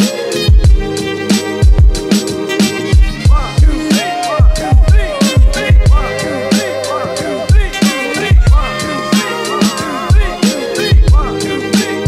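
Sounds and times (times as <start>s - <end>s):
deep bass hits: 0.5s - 6.3s, 7.5s - 8.9s
wavering vocal line: 2.4s - 12.0s.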